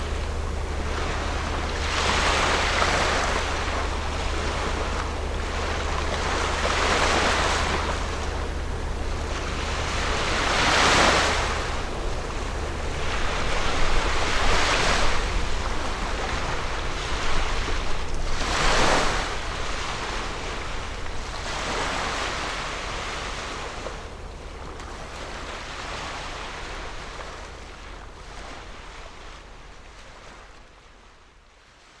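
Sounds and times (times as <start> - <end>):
wind rumble on microphone: 0.0 - 32.0
waves washing against rocks: 12.8 - 23.6.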